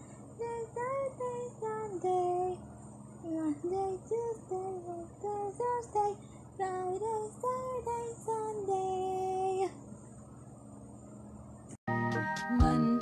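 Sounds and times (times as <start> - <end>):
girl singing: 0.4 - 2.6, 3.2 - 9.8, 12.5 - 13.0.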